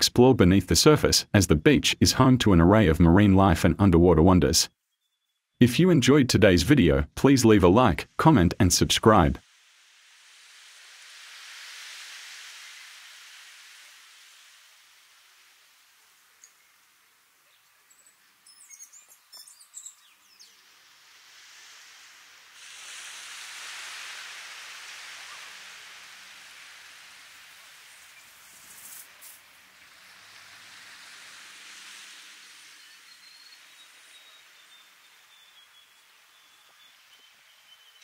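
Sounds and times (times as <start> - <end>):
bird chirps: 4.8 - 5.6, 17.4 - 20.7, 32.6 - 38.0
waves washing onto beach: 9.4 - 17.4, 20.6 - 35.0.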